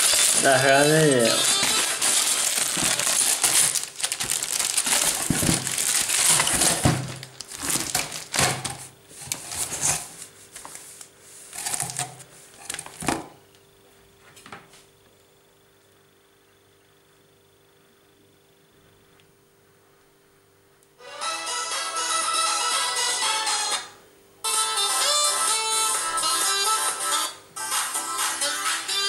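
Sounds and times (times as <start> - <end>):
cardboard and plastic wrapping rustling: 0.0 - 13.3
faint steady hum: 0.0 - 29.0.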